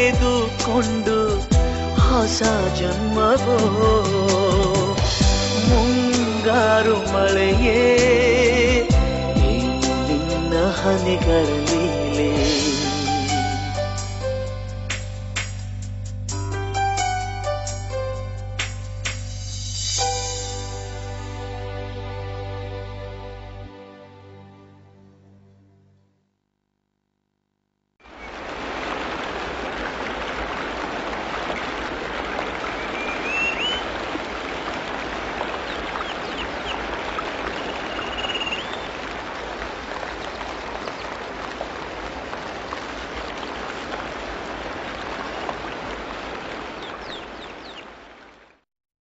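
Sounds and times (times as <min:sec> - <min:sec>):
heavy rain falling: 0:00.0 - 0:14.0, 0:28.0 - 0:48.6
bird chirping: 0:32.6 - 0:34.0, 0:35.5 - 0:39.0, 0:46.8 - 0:47.9.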